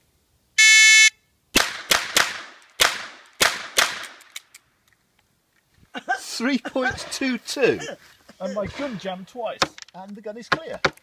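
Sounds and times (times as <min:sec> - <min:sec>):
shot timer beep: 0:00.6 - 0:01.1
revolver gunshots: 0:01.6 - 0:04.2
faint clicks: 0:04.2 - 0:05.8.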